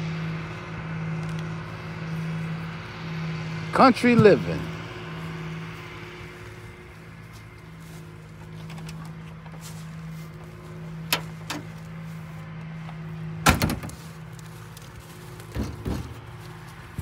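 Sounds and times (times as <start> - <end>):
vehicle engine idling: 0.0 - 17.0
car door slam: 13.4 - 14.0.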